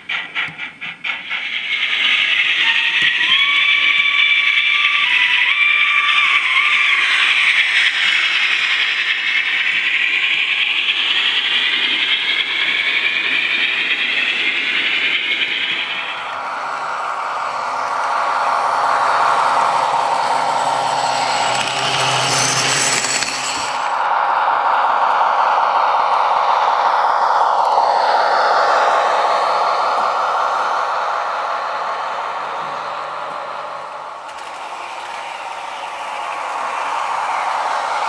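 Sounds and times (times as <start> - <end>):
model train wheels rattling on track: 0.0 - 18.0, 18.6 - 24.0, 33.3 - 38.0.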